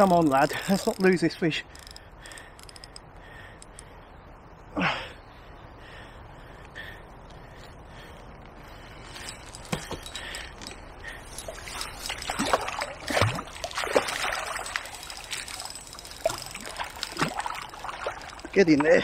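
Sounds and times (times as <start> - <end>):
fish splashing at water surface: 11.5 - 18.5.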